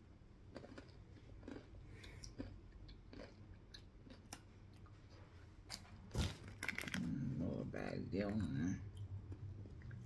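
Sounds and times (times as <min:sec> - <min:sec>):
chewing crunchy chip: 0:00.5 - 0:04.5.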